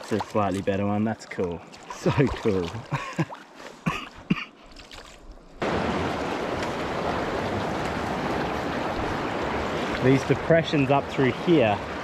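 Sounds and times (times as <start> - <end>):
river water running over rocks: 5.1 - 12.0.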